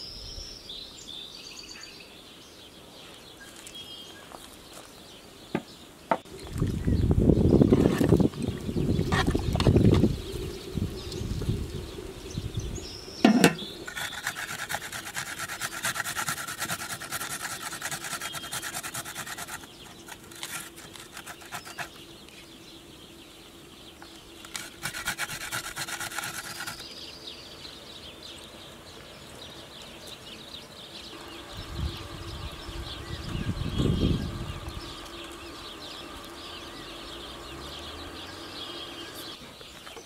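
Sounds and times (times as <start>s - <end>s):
vegetable grating rasps: 13.3s - 22.0s, 24.4s - 26.9s.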